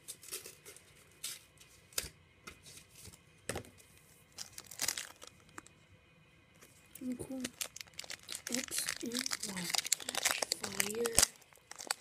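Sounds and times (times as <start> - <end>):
foil pack tearing and crinkling: 4.4 - 5.4, 7.4 - 12.0.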